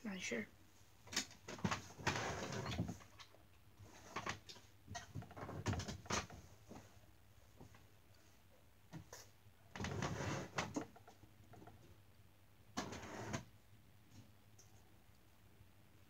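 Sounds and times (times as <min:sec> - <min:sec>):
clothes rustling and scraping: 0:00.8 - 0:03.2, 0:09.0 - 0:10.9.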